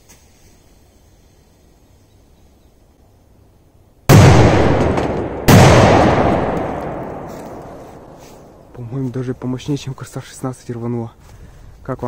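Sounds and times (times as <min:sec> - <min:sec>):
echo of blasts: 0:04.1 - 0:08.8.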